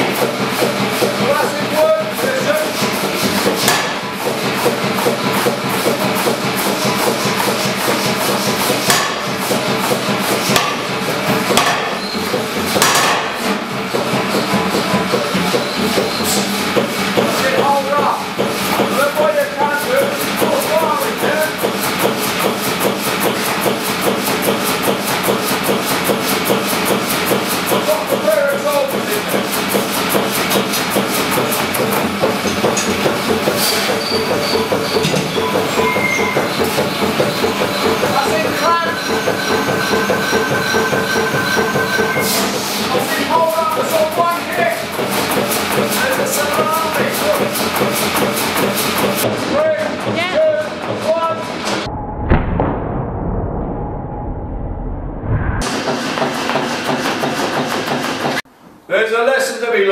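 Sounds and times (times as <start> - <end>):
power hammer ram knocking: 3.4 - 16.1
power hammer clattering: 31.6 - 42.4
machine hum: 49.2 - 56.5.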